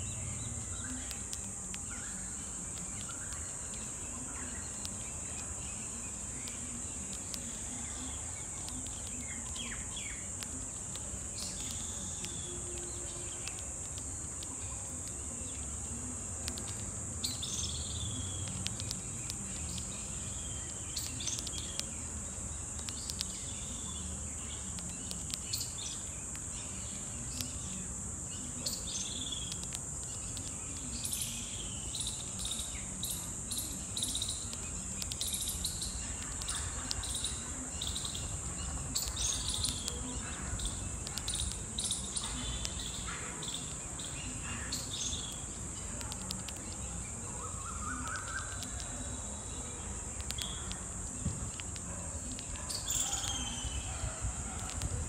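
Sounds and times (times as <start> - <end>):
birds chirping: 0.0 - 55.0
high-pitched insect drone: 0.0 - 55.0.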